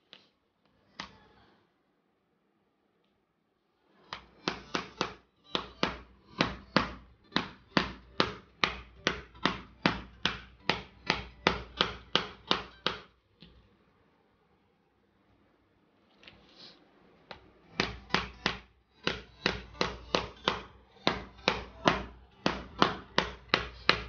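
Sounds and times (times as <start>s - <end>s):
hammer tapping plastic case: 4.2s - 13.1s, 17.8s - 24.0s.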